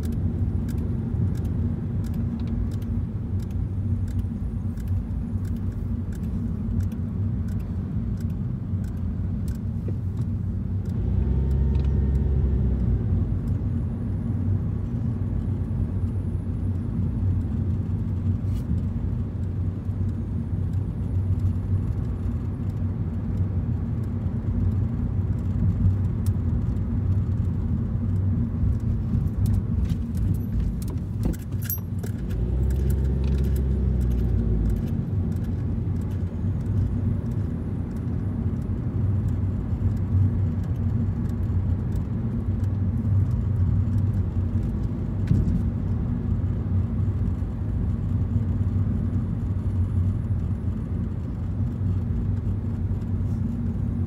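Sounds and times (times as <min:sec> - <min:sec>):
car road noise rumble: 0:00.0 - 0:54.0
faint clicks and rattles: 0:17.4 - 0:45.7.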